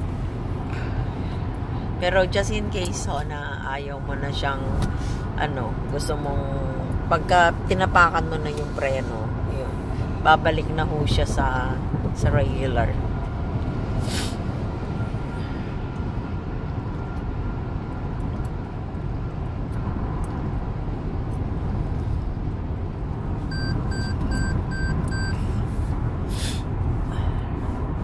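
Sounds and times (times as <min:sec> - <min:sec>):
car road and engine noise: 0:00.0 - 0:28.0
short electronic beeps: 0:23.5 - 0:25.5.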